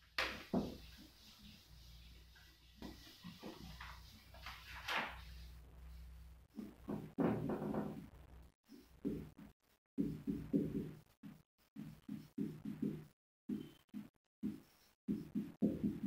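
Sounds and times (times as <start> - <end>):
marker rubbing on whiteboard: 0.2 - 5.6, 8.7 - 16.0.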